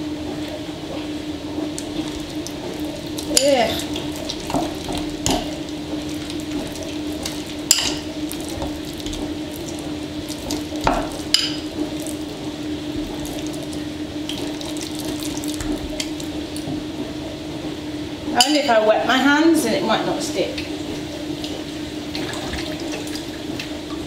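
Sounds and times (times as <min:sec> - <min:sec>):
steady low hum: 0:00.0 - 0:24.0
wet crackle of stirred slime: 0:00.9 - 0:16.9.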